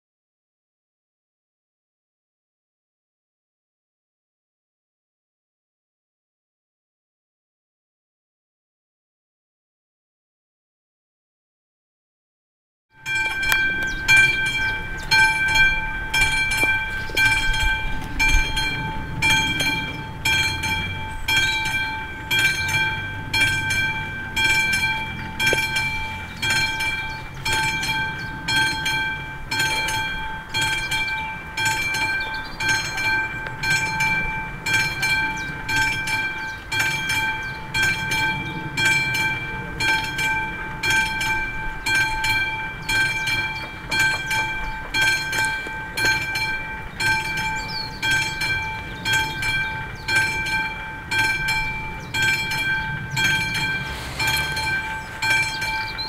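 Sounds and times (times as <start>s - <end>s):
level crossing bell ringing: 13.0s - 56.0s.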